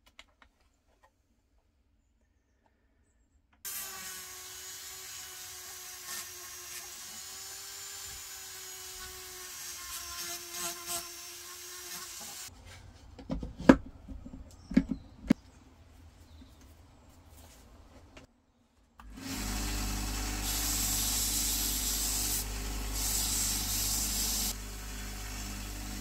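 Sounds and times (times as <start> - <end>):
rotary tool grinding metal: 3.7 - 12.5, 19.1 - 26.0.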